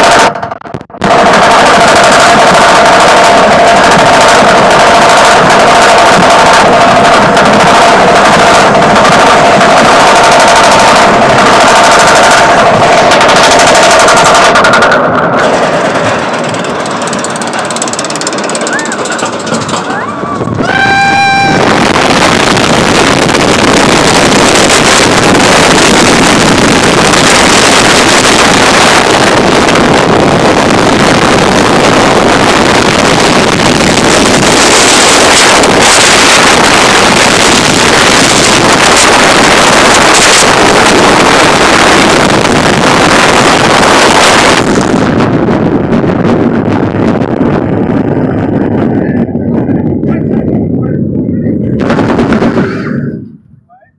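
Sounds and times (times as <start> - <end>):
wind rushing over microphone: 0.0 - 53.9
high-pitched cry: 19.9 - 21.7.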